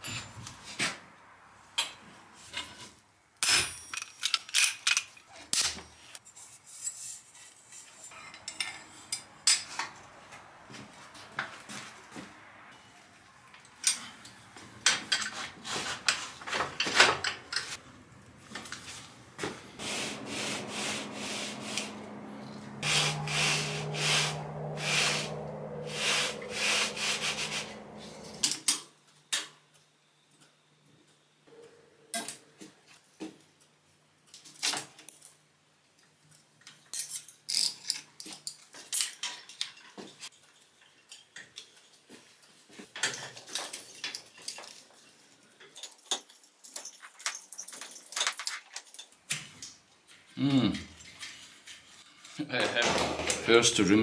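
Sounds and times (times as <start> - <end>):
steady low hum: 17.8 - 28.5
rubbing and scraping: 18.5 - 28.4.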